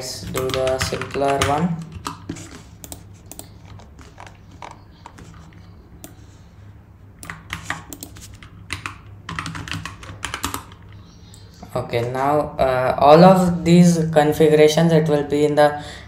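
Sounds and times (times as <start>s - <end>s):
keyboard keys clicking: 0.2s - 6.2s, 7.2s - 11.0s.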